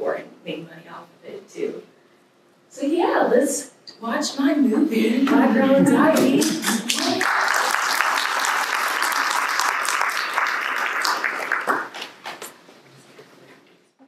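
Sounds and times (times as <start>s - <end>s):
audience applauding: 6.2s - 12.5s.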